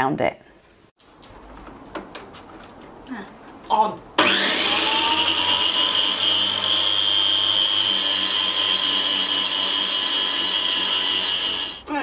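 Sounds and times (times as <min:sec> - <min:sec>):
tile saw whining: 0:04.2 - 0:11.9.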